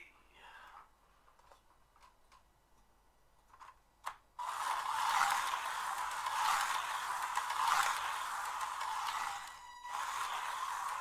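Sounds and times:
slot car motor whirring: 0:04.4 - 0:11.0.

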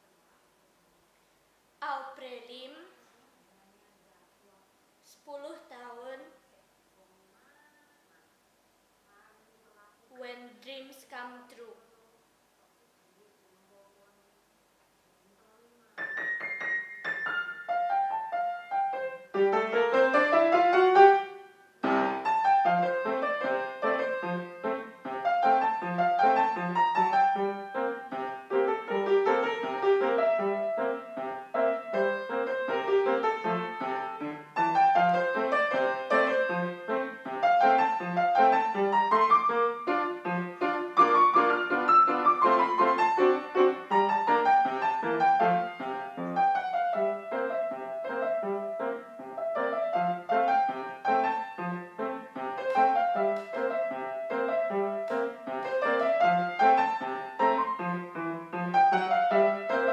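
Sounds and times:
upright piano playing: 0:16.0 - 0:59.9.

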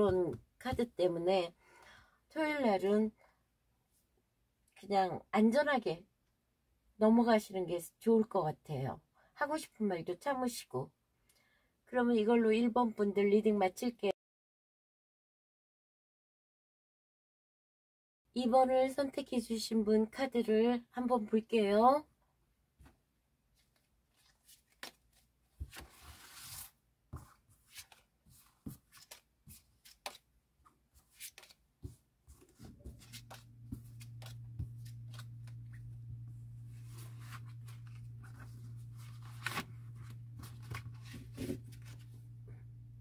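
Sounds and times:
cards shuffling and sliding: 0:23.6 - 0:30.3, 0:31.0 - 0:36.0, 0:36.6 - 0:42.2
steady low hum: 0:32.8 - 0:43.0.

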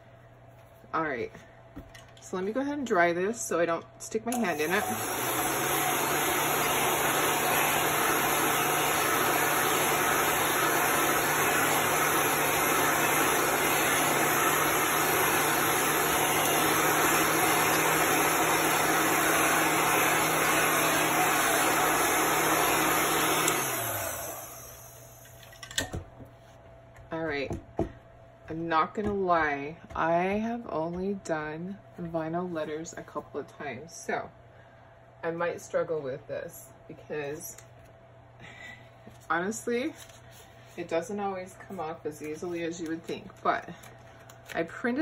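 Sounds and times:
dryer blowing air: 0:04.3 - 0:25.3.

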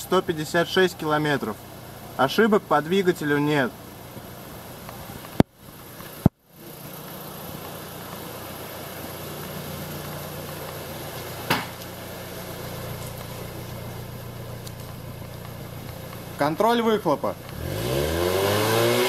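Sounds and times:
car engine idling: 0:00.0 - 0:19.0
short knock: 0:11.5 - 0:11.8.

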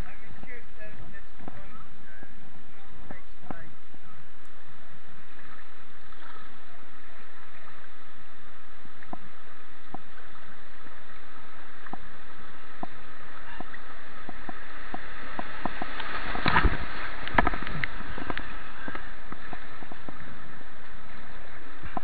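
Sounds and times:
rushing white water: 0:00.0 - 0:22.0
paddle splashes and knocks: 0:12.7 - 0:20.4.

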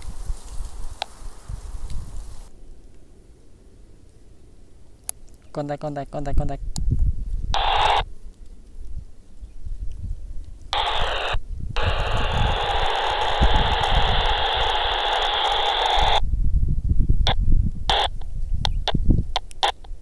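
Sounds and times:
wind rumble on microphone: 0:00.0 - 0:02.8, 0:06.1 - 0:20.0
radio static hiss: 0:00.7 - 0:02.5, 0:07.5 - 0:08.1, 0:10.7 - 0:16.2, 0:17.3 - 0:20.0
short radio blips: 0:07.6 - 0:08.1, 0:10.7 - 0:16.2, 0:17.3 - 0:18.2.

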